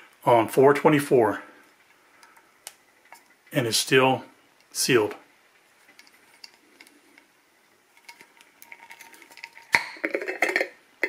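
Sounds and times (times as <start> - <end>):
lid rattling against glass: 8.0 - 10.8.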